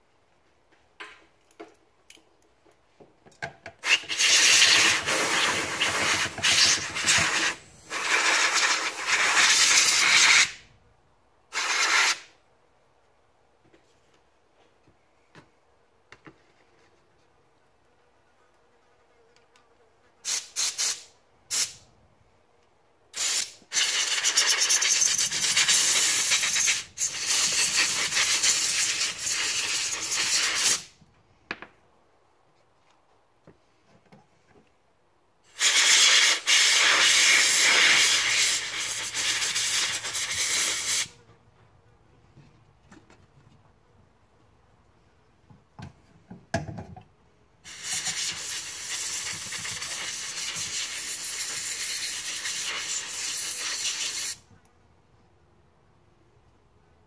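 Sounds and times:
pressurised spray hissing: 3.8s - 10.6s, 11.5s - 12.3s, 20.2s - 21.8s, 23.2s - 30.9s, 35.5s - 41.1s, 47.7s - 54.4s.

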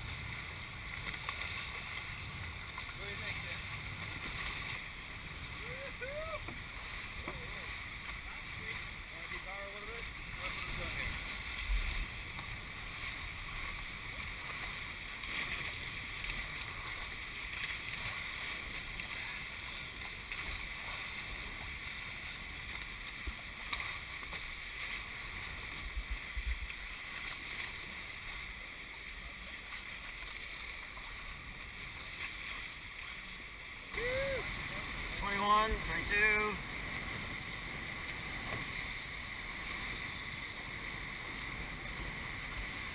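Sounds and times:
water rushing past hulls: 0.0s - 42.9s
wind on microphone: 33.9s - 42.9s.

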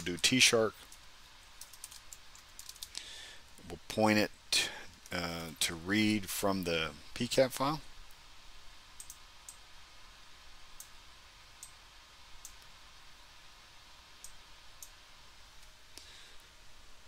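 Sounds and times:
low steady hiss: 0.0s - 17.0s
computer mouse clicks: 0.8s - 3.0s, 9.0s - 9.6s, 12.4s - 12.7s.

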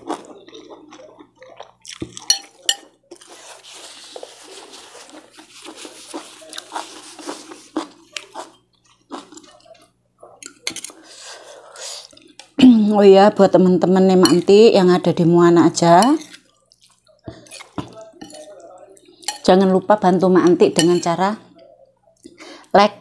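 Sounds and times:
chewing: 0.0s - 12.6s, 16.1s - 19.5s.

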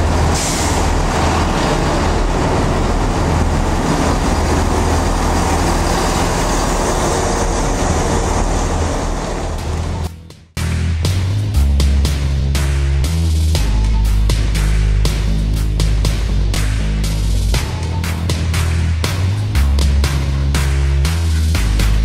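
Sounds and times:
wheels on rail: 0.0s - 10.1s
diesel train engine humming: 0.0s - 22.0s
music: 9.6s - 22.0s.

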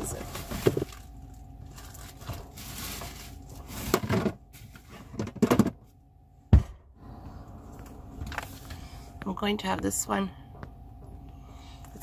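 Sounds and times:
packaging knocks and rustles: 0.0s - 5.8s
faint steady hum: 0.0s - 12.0s.

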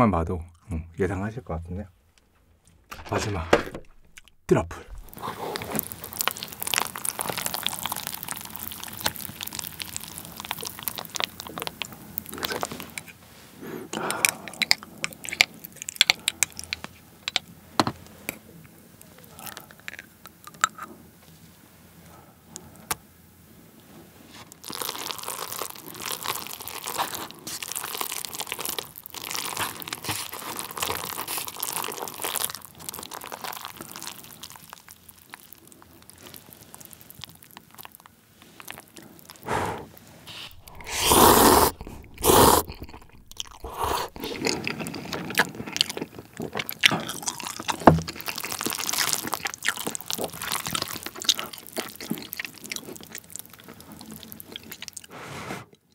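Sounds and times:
chopsticks stirring wet noodles: 40.3s - 45.2s
sauce spooned from glass jar: 40.4s - 44.6s.

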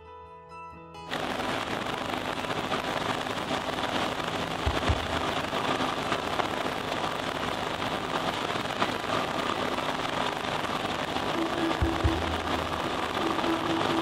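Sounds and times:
airplane engine and propeller: 1.1s - 14.0s
faint steady hum: 1.1s - 14.0s
low thumps: 4.5s - 5.8s.

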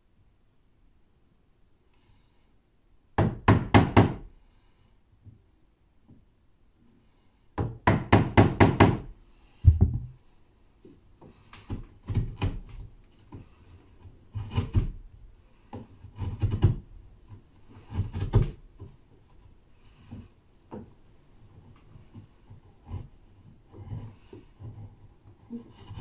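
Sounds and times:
heavy thump: 9.6s - 10.2s.

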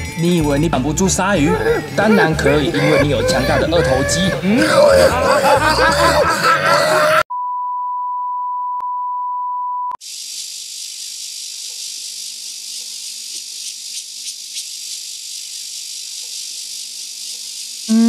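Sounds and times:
insects chirping: 10.0s - 18.0s.

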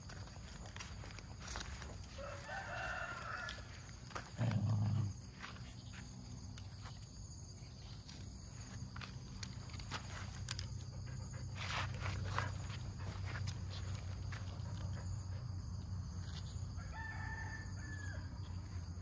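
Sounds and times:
footsteps on gravel: 0.0s - 7.0s, 8.6s - 10.6s
rooster crowing: 2.0s - 4.2s, 16.7s - 18.6s.

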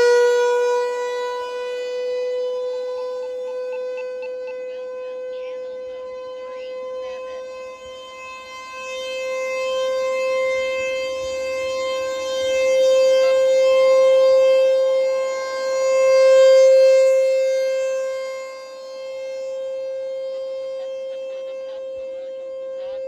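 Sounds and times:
warning siren steady tone: 0.0s - 23.0s.

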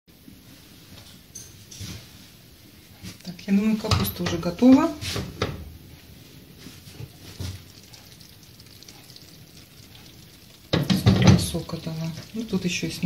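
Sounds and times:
food simmering hiss: 2.0s - 13.0s
frying pan and glass lid knocks: 10.7s - 11.6s.

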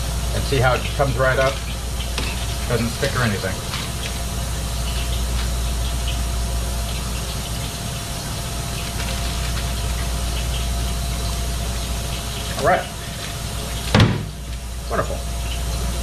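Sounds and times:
oil bubbling and hissing: 0.0s - 16.0s.

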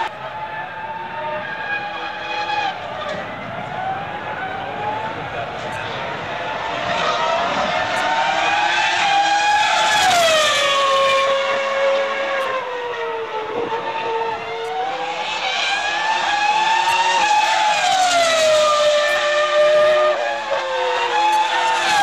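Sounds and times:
racing car engine revving: 0.0s - 22.0s.

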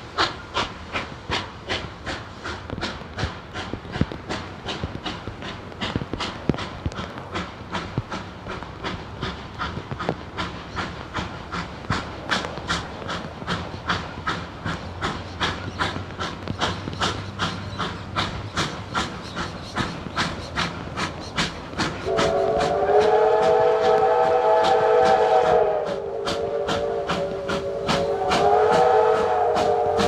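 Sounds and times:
steam locomotive exhaust chuffing: 0.0s - 30.0s
steam whistle: 22.1s - 30.0s.

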